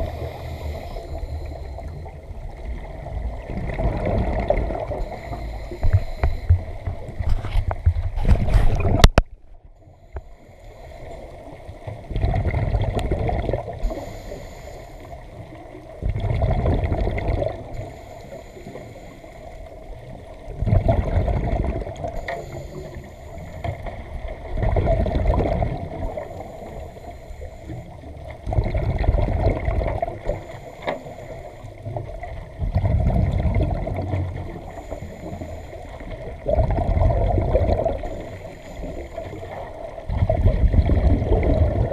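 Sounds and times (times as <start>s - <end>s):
regulator inhalation hiss: 0.0s - 2.1s, 5.0s - 6.8s, 9.9s - 11.4s, 13.8s - 15.4s, 17.7s - 19.7s, 22.2s - 23.9s, 26.1s - 28.0s, 30.2s - 31.8s, 34.5s - 36.2s, 38.0s - 39.7s
rush of water and bubbles: 0.0s - 41.9s
diver exhaling bubbles underwater: 3.4s - 5.1s, 12.1s - 13.9s, 16.0s - 17.8s, 20.5s - 22.0s, 24.6s - 26.2s, 32.6s - 34.6s, 36.2s - 39.0s, 40.1s - 41.9s.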